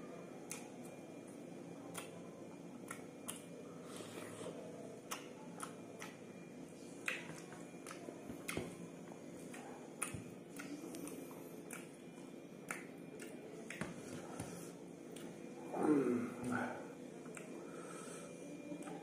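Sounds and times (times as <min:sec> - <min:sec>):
faint hum: 0:00.0 - 0:19.0
chewing mouth clicks and smacks: 0:00.5 - 0:02.2, 0:02.8 - 0:03.5, 0:05.0 - 0:06.2, 0:07.0 - 0:08.8, 0:09.4 - 0:14.1, 0:17.2 - 0:17.6.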